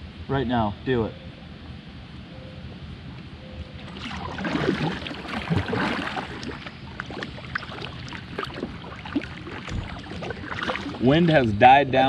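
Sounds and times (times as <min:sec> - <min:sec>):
paddle splashing water: 0:03.8 - 0:11.6.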